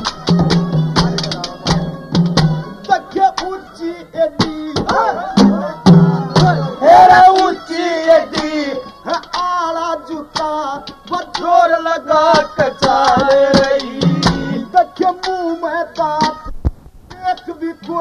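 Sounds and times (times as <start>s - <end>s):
hand drum strokes: 0.0s - 3.5s
wavering melody: 0.0s - 3.6s, 4.9s - 9.2s.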